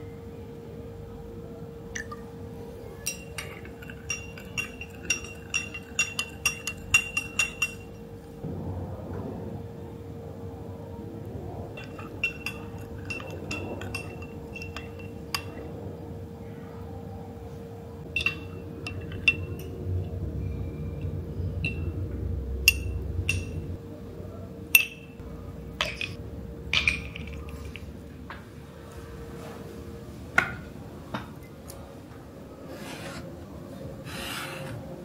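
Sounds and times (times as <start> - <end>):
faint steady hum: 0.0 - 35.0
teaspoon clinking against glass: 3.0 - 8.0, 11.8 - 15.7, 18.1 - 19.8.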